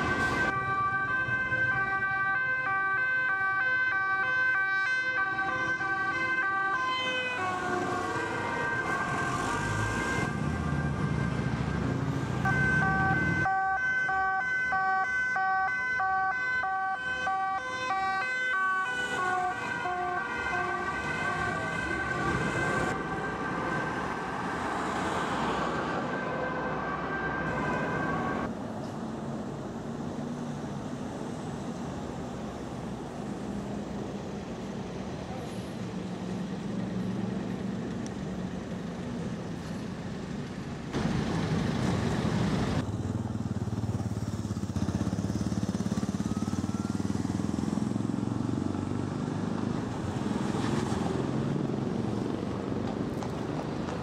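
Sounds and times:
two-tone police siren: 0:00.0 - 0:28.5, 0:45.7 - 0:48.0
traffic and engine noise: 0:00.0 - 0:54.0.

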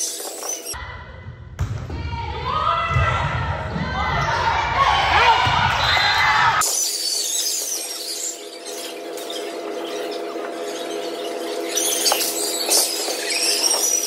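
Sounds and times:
sneakers squeaking on floor: 0:00.0 - 0:00.8, 0:06.6 - 0:14.0.

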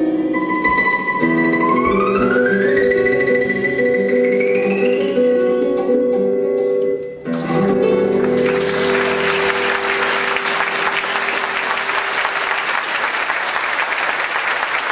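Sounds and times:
audience applause: 0:07.6 - 0:14.9.

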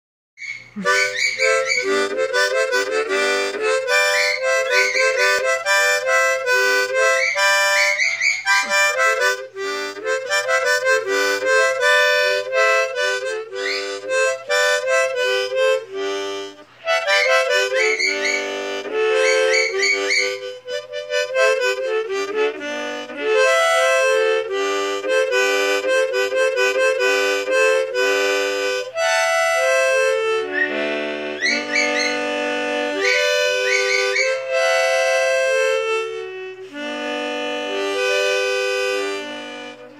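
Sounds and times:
harmonica tune: 0:00.4 - 0:39.9.

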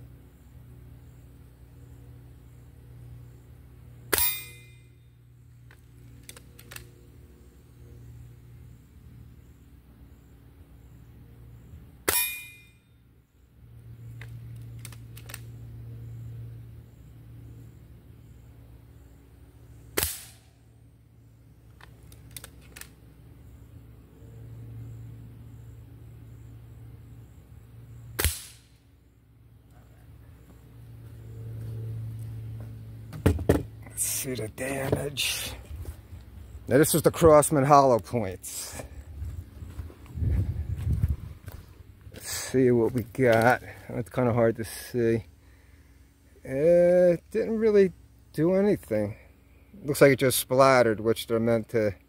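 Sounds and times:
air rifle shot with metallic ring: 0:04.1 - 0:05.0, 0:12.0 - 0:12.9, 0:20.0 - 0:20.6, 0:28.2 - 0:28.7.

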